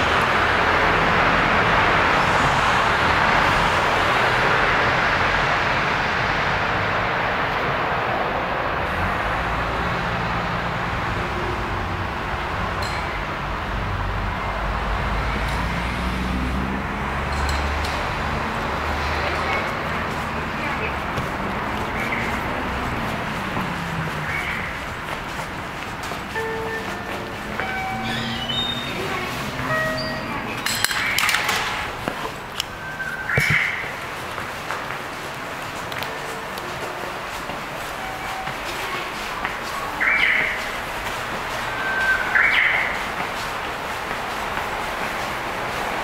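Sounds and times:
vehicle rumble and hiss: 0:00.0 - 0:46.0
low engine hum: 0:13.4 - 0:30.6
scattered clicks and knocks: 0:21.0 - 0:32.8
short electronic beeps: 0:26.4 - 0:30.5.

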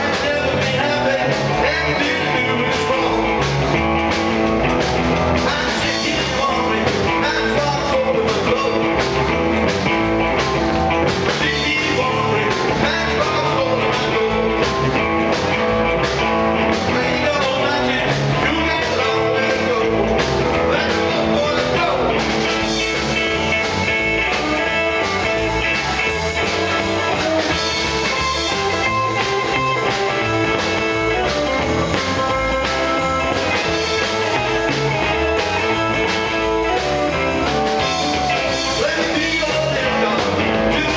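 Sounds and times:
person singing into a microphone: 0:00.0 - 0:03.4, 0:05.4 - 0:08.9, 0:11.3 - 0:14.8, 0:37.4 - 0:40.9
drum kit with cymbals: 0:00.0 - 0:40.9
electric guitar: 0:00.0 - 0:40.9.

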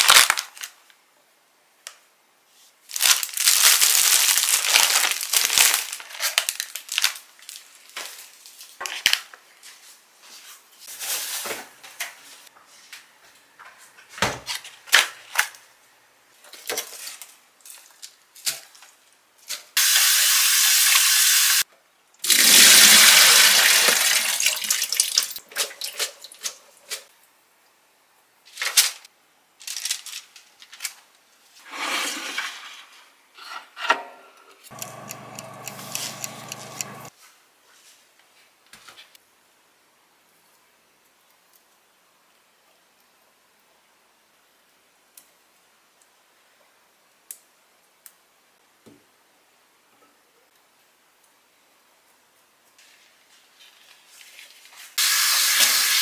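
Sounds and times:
steady hum: 0:34.7 - 0:37.1.

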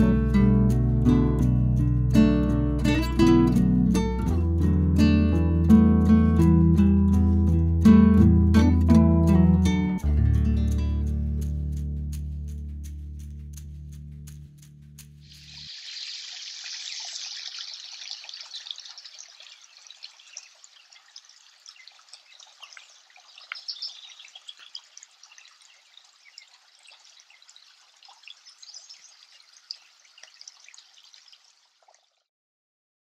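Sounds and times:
creek trickling over rocks: 0:15.2 - 0:32.3.

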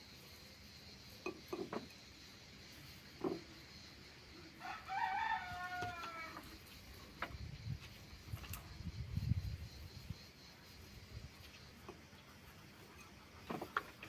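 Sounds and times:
rooster crowing: 0:04.6 - 0:06.6.

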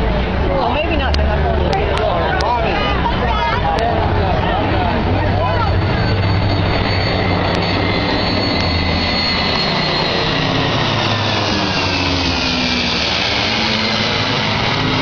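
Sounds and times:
jet roar: 0:00.0 - 0:15.0
propeller engine drone: 0:00.0 - 0:15.0
falling whine: 0:02.2 - 0:15.0.

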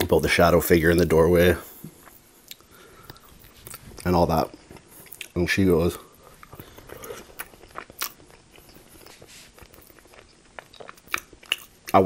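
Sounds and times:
close chewing: 0:06.3 - 0:12.0.

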